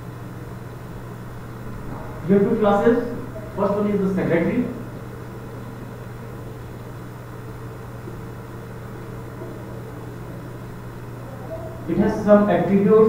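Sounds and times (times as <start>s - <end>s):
low hum: 0.0s - 13.0s
room noise hiss: 0.0s - 13.0s.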